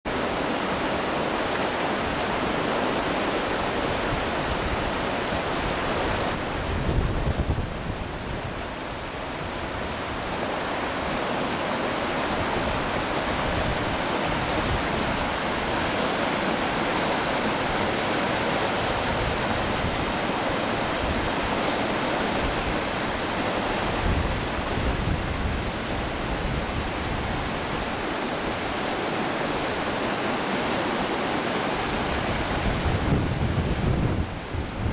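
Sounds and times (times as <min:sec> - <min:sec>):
river rushing over rapids: 0:00.1 - 0:34.9
wind rumble on microphone: 0:03.8 - 0:10.4, 0:18.7 - 0:28.8, 0:32.0 - 0:34.9.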